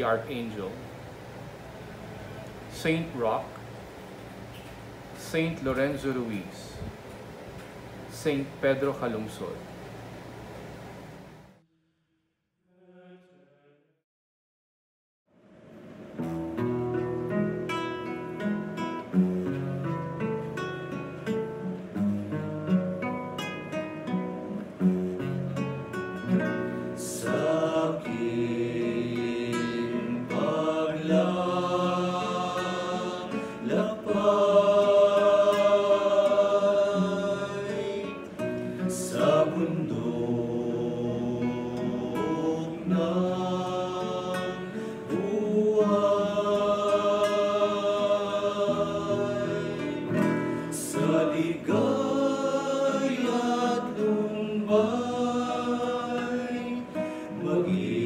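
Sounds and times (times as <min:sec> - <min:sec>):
strummed acoustic guitar: 0:16.2 - 0:58.0
men singing together: 0:27.0 - 0:58.0.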